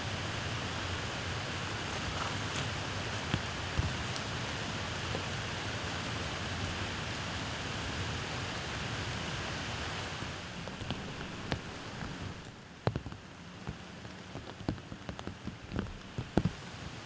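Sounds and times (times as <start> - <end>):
rain falling on water and leaves: 0.0 - 17.0
single raindrops: 10.0 - 17.0.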